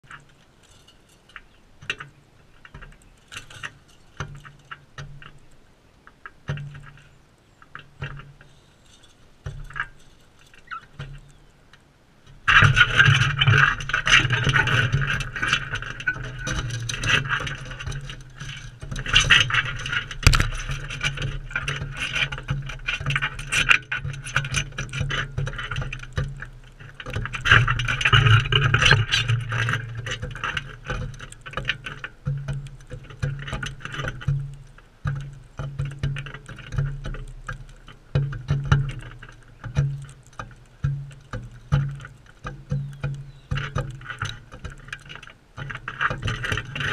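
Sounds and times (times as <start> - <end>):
bird beaks and claws tapping: 16.1 - 27.8, 29.9 - 46.8.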